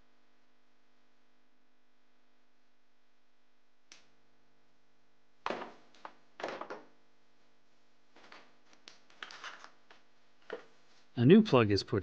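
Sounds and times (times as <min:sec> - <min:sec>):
metal tools clattering on plastic: 0:09.2 - 0:09.8.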